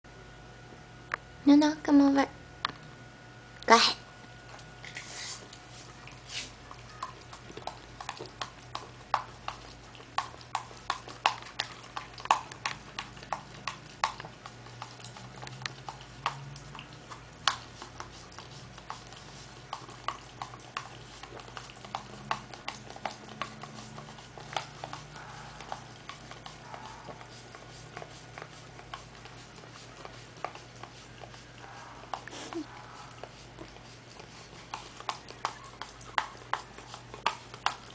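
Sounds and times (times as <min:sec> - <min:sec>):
dog licking plastic cup: 0:04.5 - 0:37.9.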